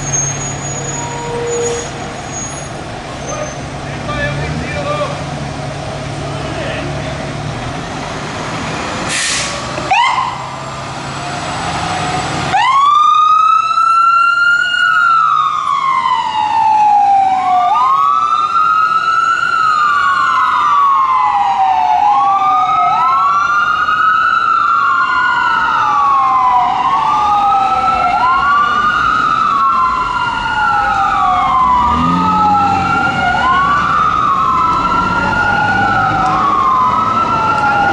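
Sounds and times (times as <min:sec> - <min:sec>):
short hiss: 0:09.1 - 0:09.6
siren wailing: 0:09.9 - 0:10.6, 0:12.5 - 0:37.9.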